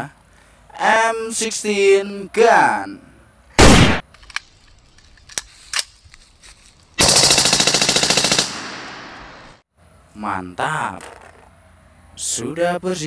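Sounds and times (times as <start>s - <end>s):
automatic rifle firing burst: 3.6s - 4.0s, 7.0s - 9.4s.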